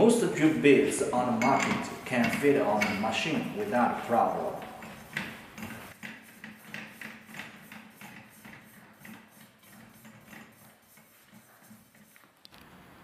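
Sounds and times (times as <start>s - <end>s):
gloved hands rubbing metal: 0.0s - 12.4s.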